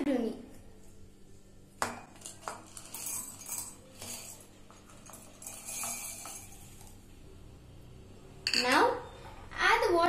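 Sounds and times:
dry pasta rattling into a mug: 2.2 - 7.0.

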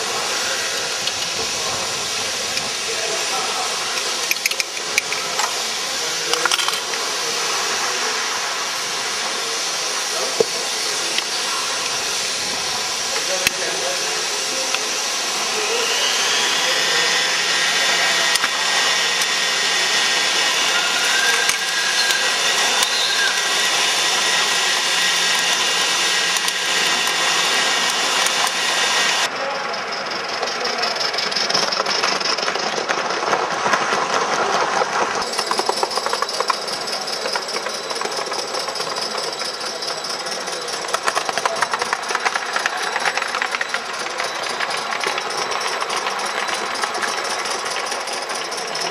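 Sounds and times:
voices in background: 0.0 - 19.9
steam locomotive hissing: 0.0 - 48.9
fast regular clatter: 30.4 - 48.9.

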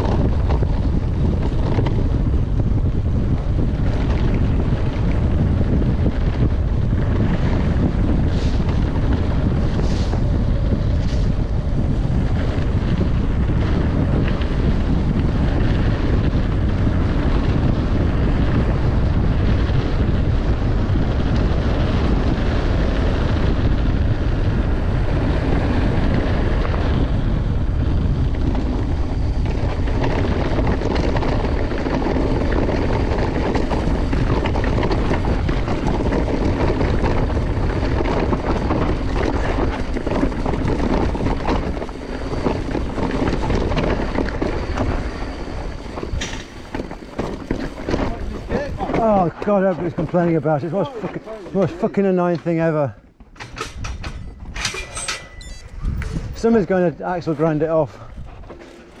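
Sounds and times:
mountain bike rumble: 0.0 - 59.0
wind buffeting microphone: 0.0 - 59.0
bike clicks and knocks: 45.8 - 50.2, 52.3 - 56.4.

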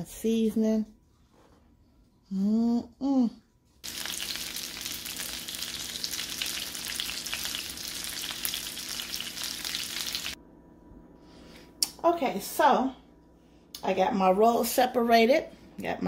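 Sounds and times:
chicken frying in oil: 3.8 - 10.4.

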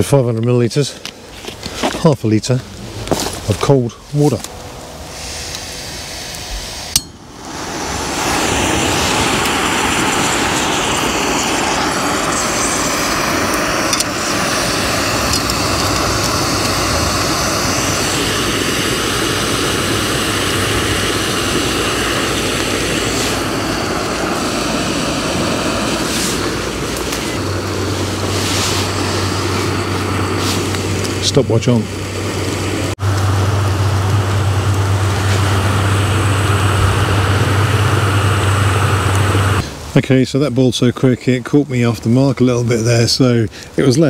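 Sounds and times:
low hum: 2.6 - 39.7
gas stove burner hissing: 3.0 - 39.8.

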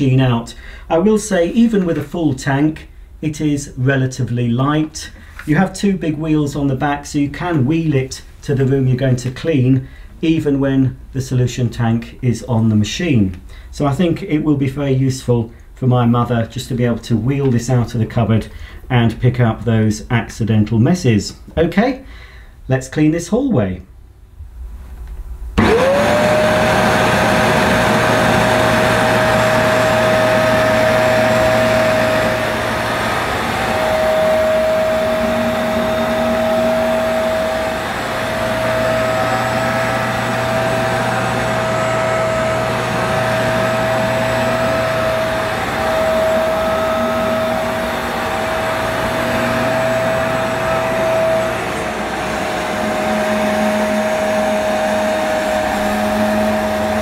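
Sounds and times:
carpet washer motor whining: 25.6 - 57.0
rushing suction noise: 25.6 - 57.0.

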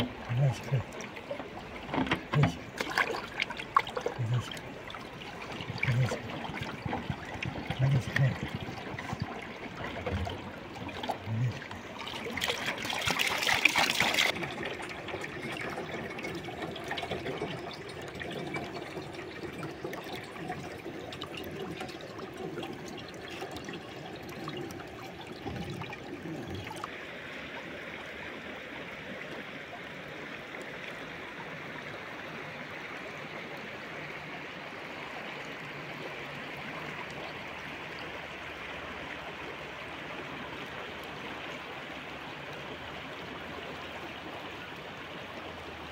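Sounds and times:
water trickling into plastic container: 0.0 - 26.9
shallow stream over stones: 0.0 - 45.9.

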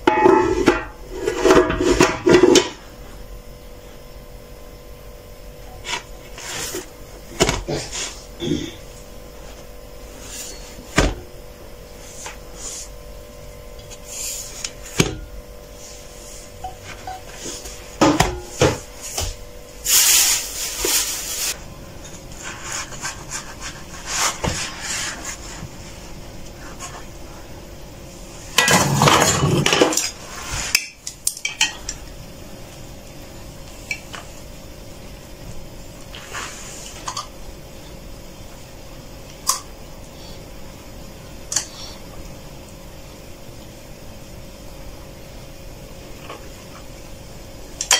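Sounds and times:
faint steady hum: 0.0 - 47.9
scraping or rustling: 5.8 - 6.9, 18.6 - 21.6, 22.2 - 27.1, 28.8 - 30.8.

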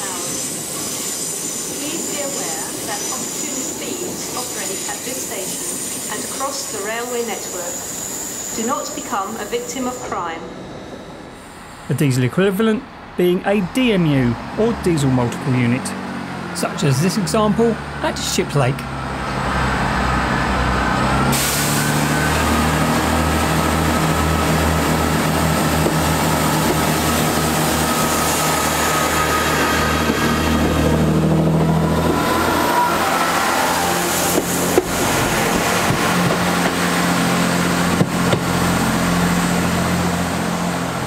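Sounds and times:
diesel train engine drone: 0.0 - 41.0
wheel and rail noise: 17.6 - 41.0.

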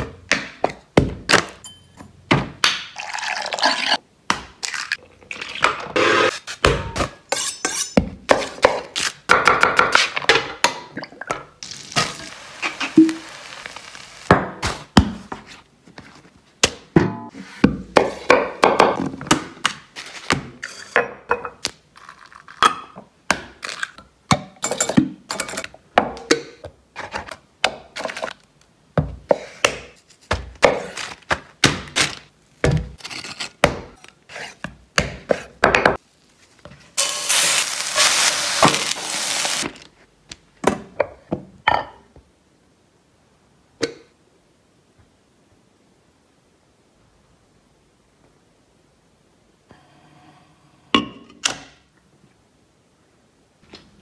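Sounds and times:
food sizzling in a frying pan: 11.6 - 14.3, 37.0 - 39.8.

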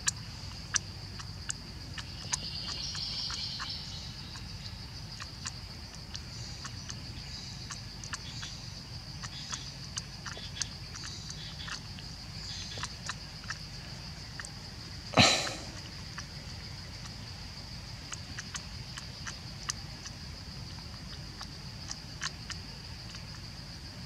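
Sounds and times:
soft sucking clicks: 7.6 - 8.6, 9.2 - 17.2, 18.0 - 23.4.

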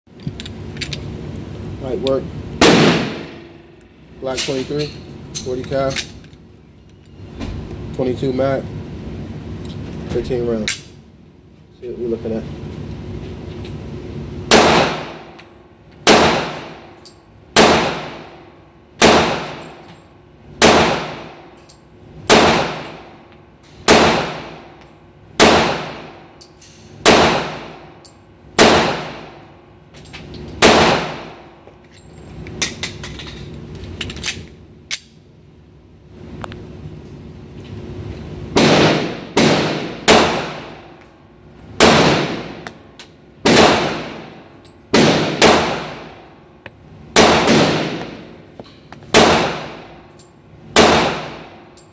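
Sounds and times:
pistol shots echoing: 2.6 - 3.5, 14.5 - 15.3, 16.0 - 16.9, 17.6 - 18.4, 19.0 - 19.7, 20.6 - 21.4, 22.3 - 23.2, 23.8 - 24.7, 25.4 - 26.2, 27.0 - 27.9, 28.6 - 29.4, 30.6 - 31.4, 38.6 - 41.0, 41.8 - 42.6, 43.4 - 46.2, 47.1 - 48.4, 49.1 - 50.0, 50.8 - 51.6.

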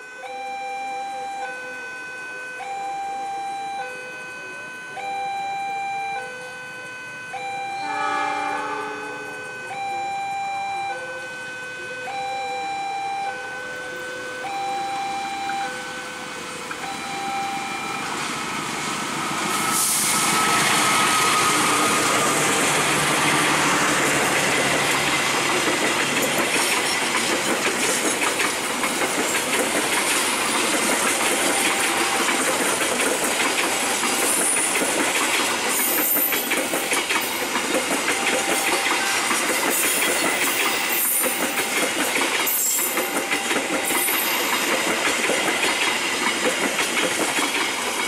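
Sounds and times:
two-tone electronic warning alarm: 0.0 - 48.0
passenger train passing at speed: 6.4 - 9.8, 13.4 - 48.0
train wheels clickety-clack: 17.8 - 48.0.

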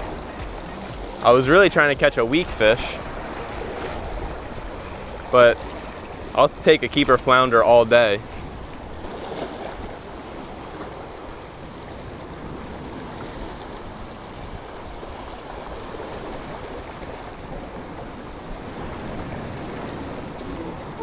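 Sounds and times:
waves washing against rocks: 0.0 - 21.0
wind buffeting microphone: 0.0 - 21.0.

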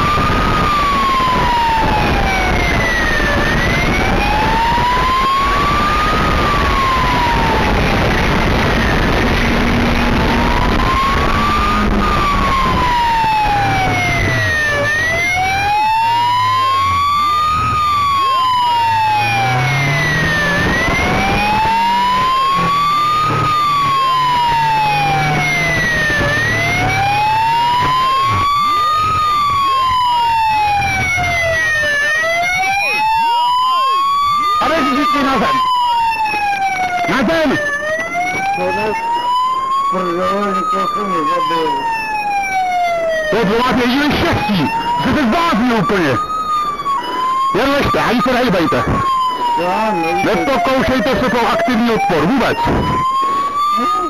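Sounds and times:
motorcycle engine: 0.0 - 35.6
motorcycle wail siren: 0.0 - 54.0.

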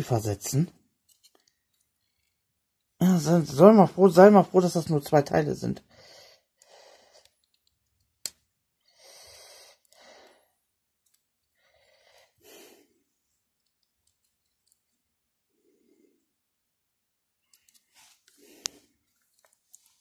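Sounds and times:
person breathing quietly: 5.8 - 7.4, 8.8 - 10.7, 11.5 - 13.3, 15.5 - 16.4, 17.8 - 19.2.

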